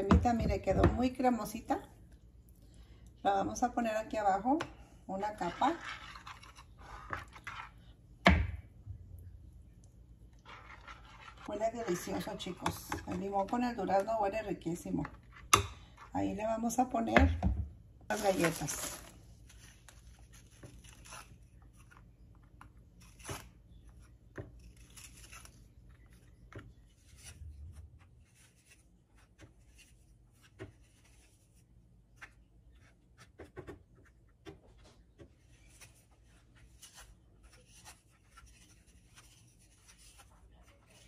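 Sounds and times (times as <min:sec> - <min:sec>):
biscuits clicking and rustling: 0:18.1 - 0:31.4.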